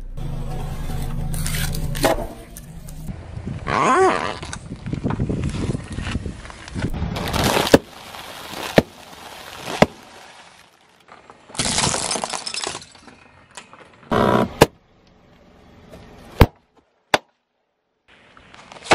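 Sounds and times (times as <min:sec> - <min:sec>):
tyre crushing small objects: 0:04.4 - 0:13.9.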